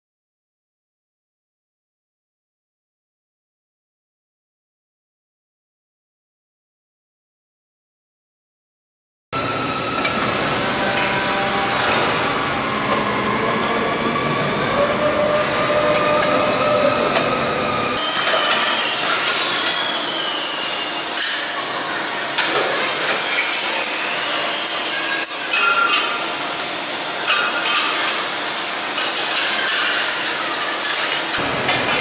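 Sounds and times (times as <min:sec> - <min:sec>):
factory machinery hissing din: 0:09.4 - 0:32.0
machinery whining tones: 0:09.4 - 0:32.0.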